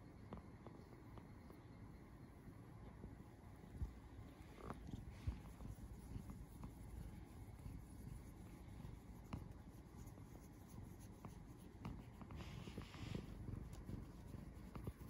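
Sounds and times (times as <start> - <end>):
fingers scratching cat fur: 4.3 - 15.0.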